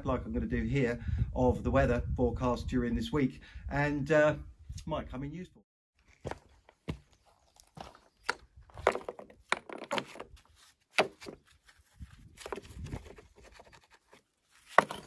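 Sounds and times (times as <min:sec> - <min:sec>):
stones knocking and scraping: 0:06.1 - 0:15.0.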